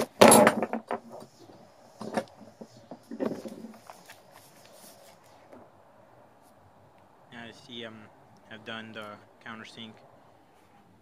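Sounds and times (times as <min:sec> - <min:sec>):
wooden knocks and clatter: 0:00.0 - 0:04.2.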